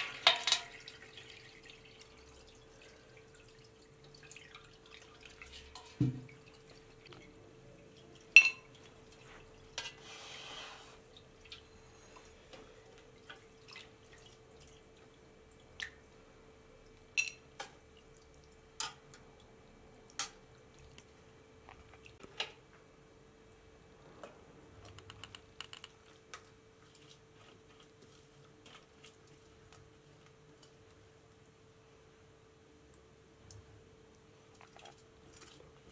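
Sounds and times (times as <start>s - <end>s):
metal pots clinking: 0.0s - 0.9s, 8.4s - 8.8s
broth dripping into a colander: 0.0s - 10.0s, 11.0s - 22.6s, 23.5s - 35.9s
faint steady hum: 0.0s - 35.9s.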